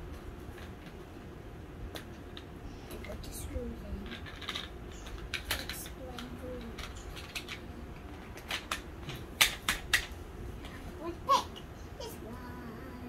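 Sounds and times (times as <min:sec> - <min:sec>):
plastic toy parts clicking: 0:04.0 - 0:07.6, 0:08.4 - 0:10.1.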